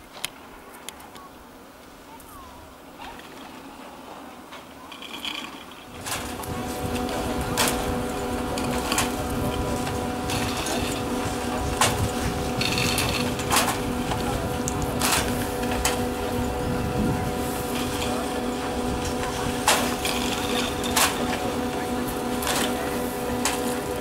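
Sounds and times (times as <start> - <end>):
surface lift mechanical hum: 2.3 - 24.0
lift hangers clacking: 17.8 - 23.8.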